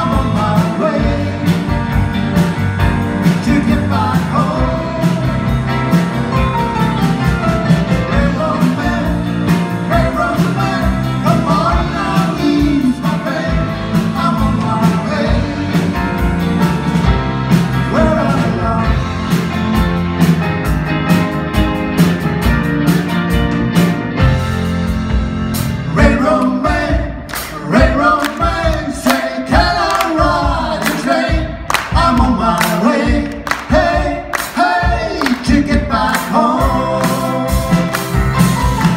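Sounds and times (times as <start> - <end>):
man singing lead: 0.0 - 1.9, 3.2 - 5.7, 8.0 - 16.2, 17.8 - 19.4, 25.9 - 38.9
live rock band playing: 0.0 - 38.9.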